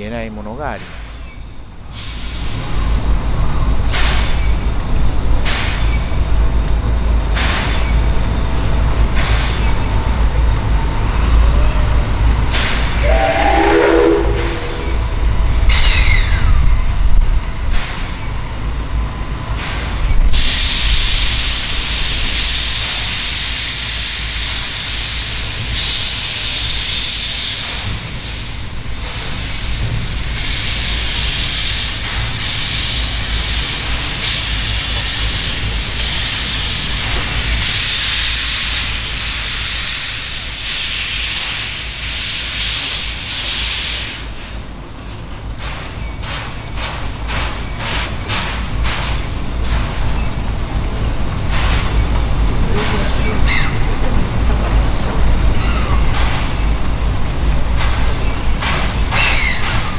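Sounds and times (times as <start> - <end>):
steam locomotive hissing: 0.8 - 5.9, 12.0 - 16.6, 19.6 - 59.9
low rumble: 12.9 - 15.8.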